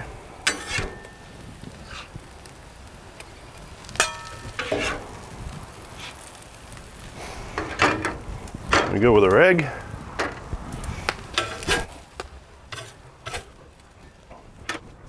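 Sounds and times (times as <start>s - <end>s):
food sizzling on griddle: 0.0s - 15.0s
metal utensil clinking and scraping: 0.5s - 1.2s, 4.0s - 5.0s, 11.3s - 11.9s, 12.7s - 13.6s.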